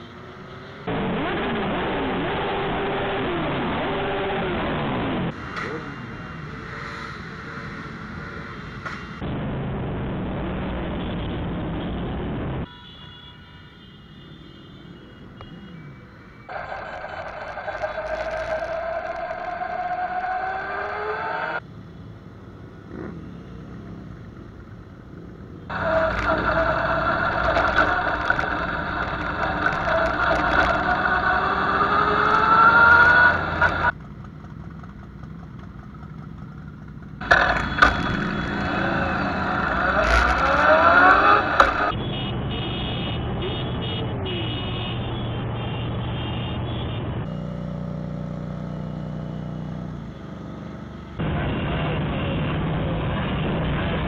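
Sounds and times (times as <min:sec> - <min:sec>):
motorcycle engines revving: 0:00.0 - 0:09.2, 0:16.5 - 0:21.6, 0:22.3 - 0:54.0
road noise: 0:00.0 - 0:54.0.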